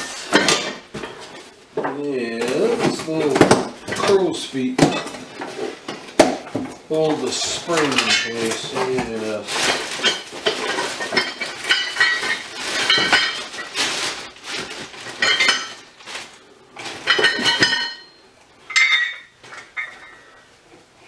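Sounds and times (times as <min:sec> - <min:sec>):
metal parts clinking in a box: 0:07.3 - 0:15.9, 0:16.8 - 0:20.3.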